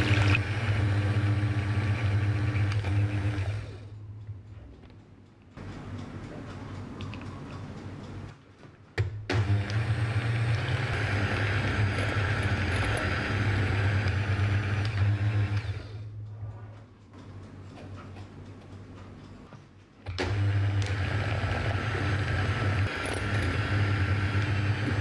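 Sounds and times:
electric hand mixer whirring: 0.0 - 3.8, 9.3 - 16.0, 20.1 - 25.0.

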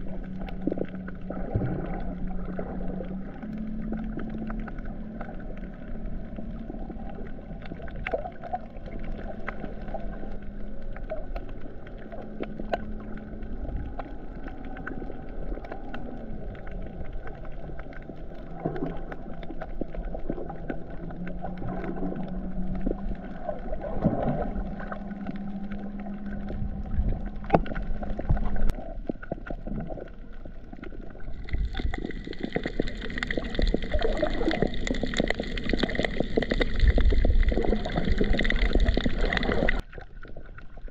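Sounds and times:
low drone: 0.0 - 29.0
muffled underwater noise: 0.0 - 40.9.

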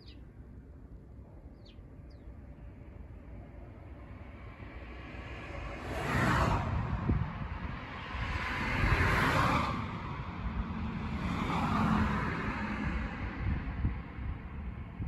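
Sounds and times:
wind rumble on microphone: 0.0 - 15.0
cars passing: 3.4 - 15.0.

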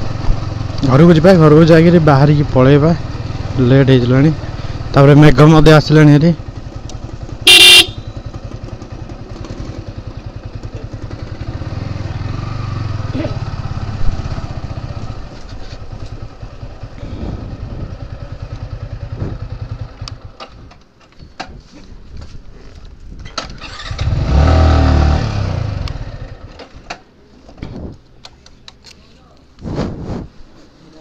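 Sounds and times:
motorcycle engine running: 0.0 - 20.6, 23.8 - 26.6
motorcycle horn beep: 7.4 - 8.4.

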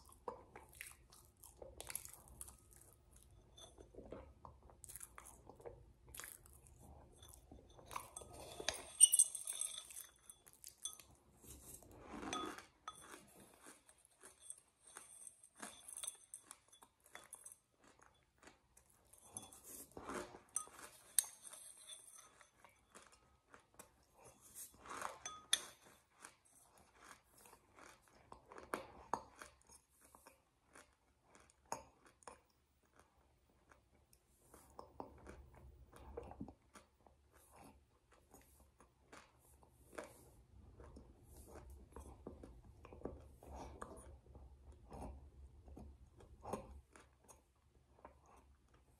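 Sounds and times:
chewing and crunching food: 0.0 - 48.9.

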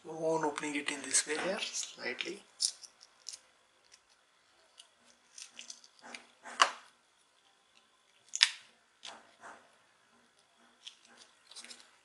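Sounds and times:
sharp plastic snaps: 8.3 - 9.3
plastic clicks and scrapes: 10.4 - 12.0.

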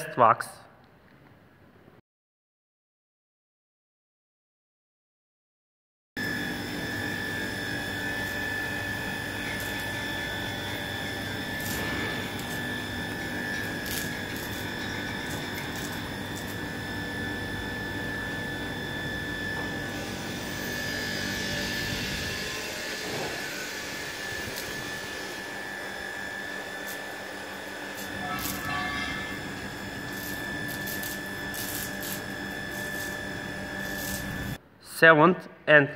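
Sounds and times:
high electric whine: 6.2 - 34.6
low machinery hum: 6.2 - 34.6.

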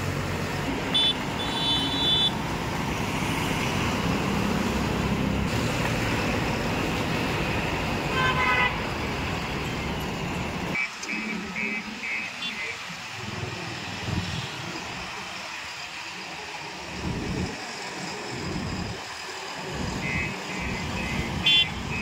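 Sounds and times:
vehicle horn: 0.9 - 2.4, 8.1 - 8.8, 20.0 - 22.0
diesel engine running: 8.8 - 22.0.

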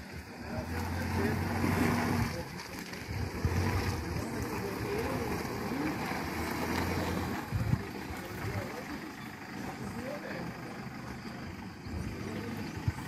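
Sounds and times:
pickup truck engine running: 0.0 - 13.0
wind rumbling on microphone: 2.1 - 5.3, 7.4 - 8.6.

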